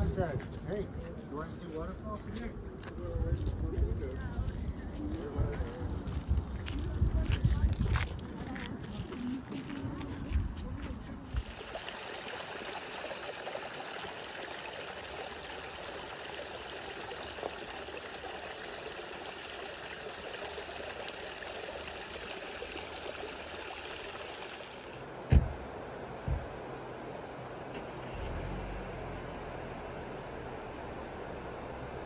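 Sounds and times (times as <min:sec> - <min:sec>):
creek trickling over rocks: 0:08.9 - 0:25.1
loud low thump: 0:25.3 - 0:25.6.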